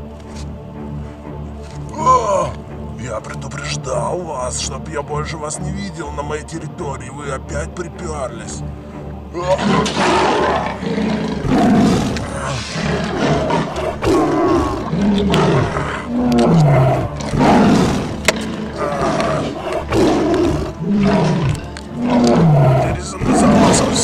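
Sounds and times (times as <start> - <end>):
background music: 0.0 - 24.0
animal roars: 9.4 - 24.0.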